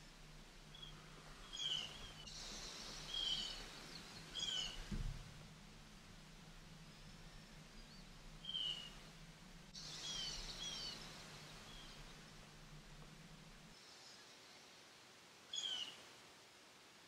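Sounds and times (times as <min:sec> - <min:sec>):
small birds chirping: 0:00.0 - 0:14.8, 0:15.5 - 0:16.1
faint low hum: 0:00.0 - 0:17.0.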